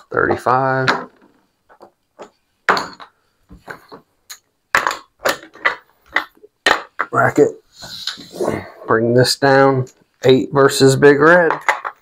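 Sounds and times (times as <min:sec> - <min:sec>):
casino chips clacking: 0:04.3 - 0:07.2.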